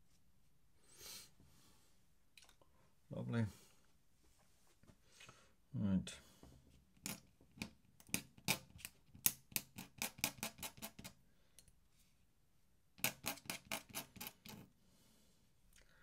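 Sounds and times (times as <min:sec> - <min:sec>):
pen nib scratching on paper: 0:09.5 - 0:11.2, 0:13.0 - 0:14.7.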